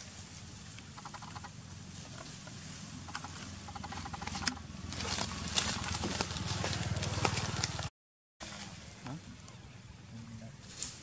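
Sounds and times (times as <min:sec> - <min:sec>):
animal walking through dry leaves: 0:00.0 - 0:07.9, 0:10.6 - 0:11.0.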